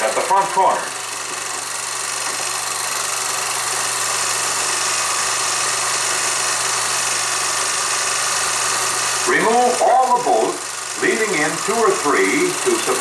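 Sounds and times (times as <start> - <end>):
narrator speaking: 0.0 - 1.0, 9.3 - 13.0
film projector hiss and hum: 0.0 - 13.0.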